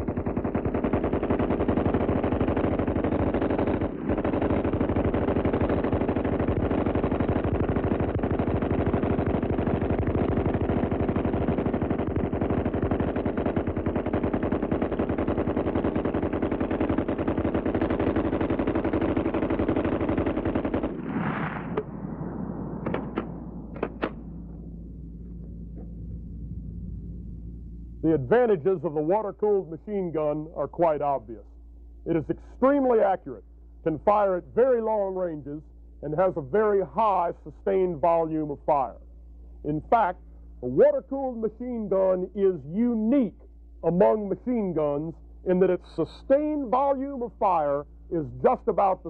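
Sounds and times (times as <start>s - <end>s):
machine gun automatic fire: 0.0s - 27.4s, 43.2s - 49.0s.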